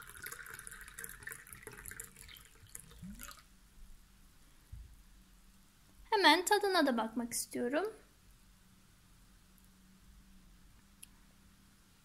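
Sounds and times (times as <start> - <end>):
liquid trickling into glass: 0.0 - 3.5.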